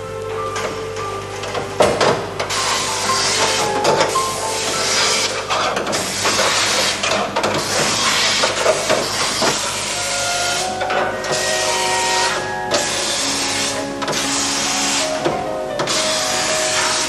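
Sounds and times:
spray guns hissing: 2.5 - 15.2.

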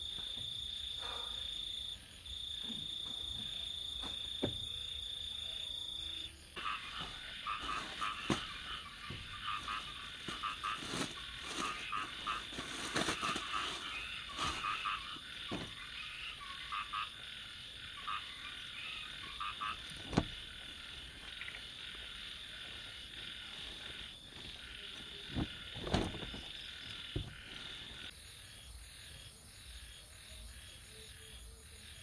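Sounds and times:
frogs croaking: 0.0 - 32.0
insect drone: 0.0 - 32.0
plastic and fabric rustling: 7.0 - 16.0, 19.8 - 21.3, 22.6 - 28.1.

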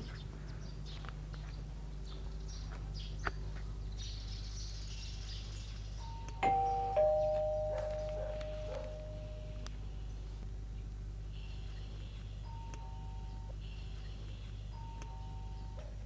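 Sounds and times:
steady low hum: 0.0 - 16.0
two-note doorbell chime: 6.4 - 9.7.

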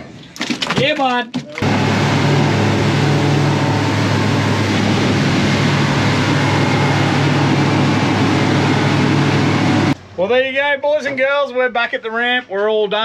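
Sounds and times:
hull slapping water: 1.6 - 10.0
wind rushing: 1.6 - 10.0
boat engine humming: 1.6 - 10.5.

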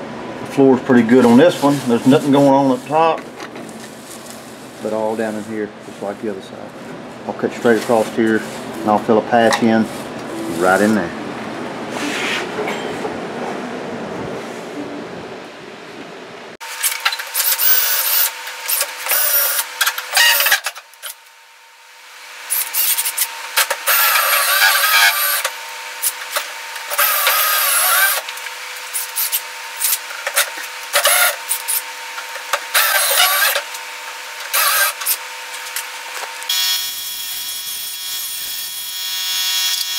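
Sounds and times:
drill screeching into metal: 16.8 - 20.8, 22.5 - 26.2, 26.9 - 28.2, 30.9 - 31.8, 32.7 - 33.6, 34.5 - 35.2, 36.5 - 39.9.

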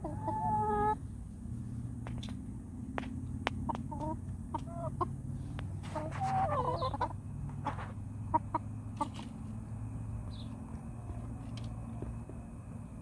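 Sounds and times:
hens clucking: 0.0 - 1.0, 3.5 - 9.7
steady low hum: 0.0 - 13.0.

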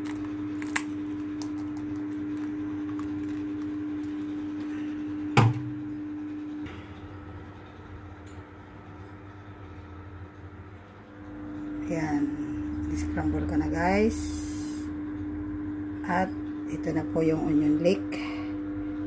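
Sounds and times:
steady hum: 0.0 - 19.0.

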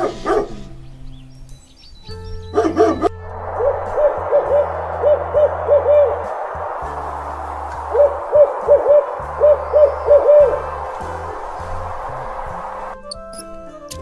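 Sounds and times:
owl hooting: 2.4 - 13.3
steady hiss: 3.0 - 13.0.

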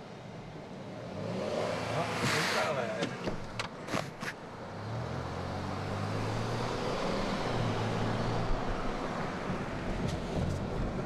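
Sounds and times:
car engine drone: 0.0 - 11.0
tyre noise on road: 0.0 - 11.0.

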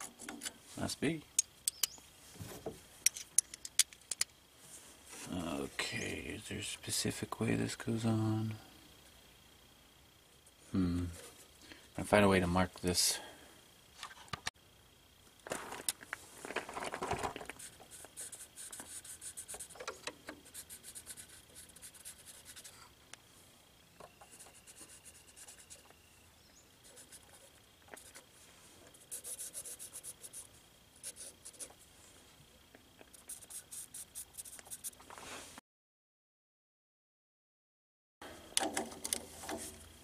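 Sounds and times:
marker pen scratching on wires: 17.5 - 19.8, 20.4 - 22.7, 24.2 - 25.9, 26.9 - 28.2, 28.9 - 31.8, 33.1 - 35.0.

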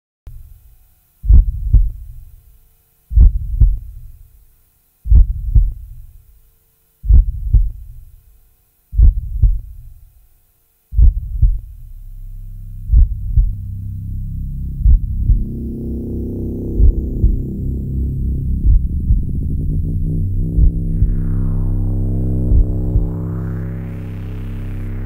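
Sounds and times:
heartbeat double thump: 1.2 - 2.2, 3.1 - 4.1, 5.1 - 6.1, 7.0 - 8.0, 9.0 - 10.0, 10.9 - 12.0, 12.8 - 24.5
low droning tone: 11.0 - 25.0.

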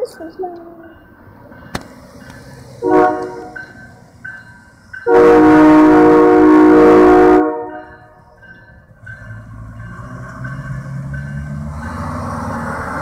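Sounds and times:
train air horn blasts: 2.8 - 3.6, 5.1 - 7.9.

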